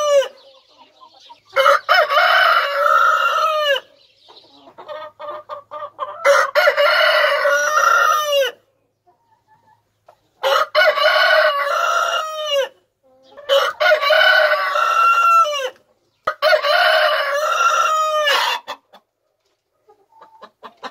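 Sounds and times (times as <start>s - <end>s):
chicken clucking: 0.0s - 20.9s
rooster crowing: 1.6s - 3.9s, 6.2s - 8.6s, 10.4s - 12.7s, 13.5s - 15.8s, 16.4s - 18.6s.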